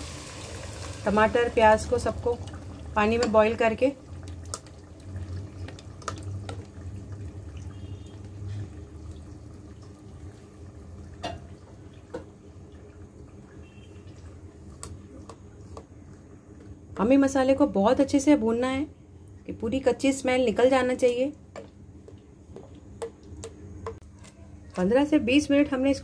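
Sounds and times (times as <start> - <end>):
paste bubbling in hot oil: 0.0 - 17.0.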